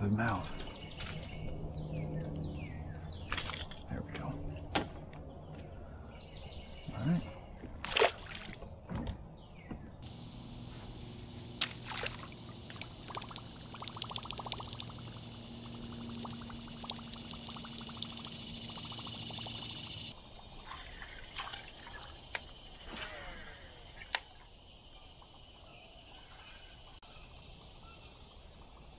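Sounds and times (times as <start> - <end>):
fish splashing into water: 7.8 - 8.6, 11.6 - 22.2
faint low hum: 10.0 - 20.2
high hiss: 10.0 - 20.2
water trickling and pouring: 11.6 - 22.3.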